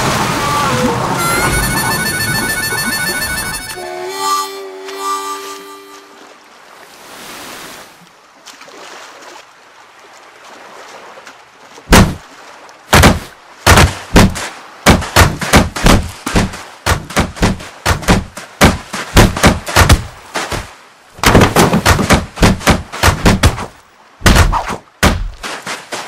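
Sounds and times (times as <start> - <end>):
soft surf: 0.0 - 26.0
held musical chord: 1.1 - 6.4
wooden crate thumps on sand: 12.9 - 26.0.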